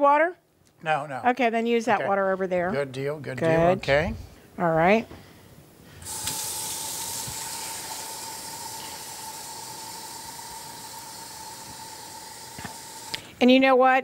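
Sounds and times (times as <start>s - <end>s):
tap running water into a cup: 6.0s - 13.3s.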